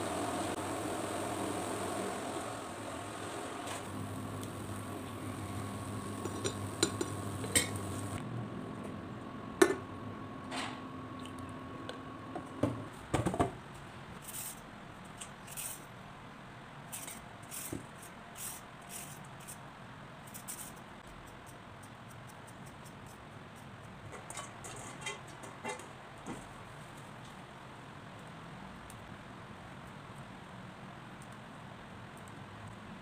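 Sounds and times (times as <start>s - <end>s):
low hum: 0.0s - 12.3s.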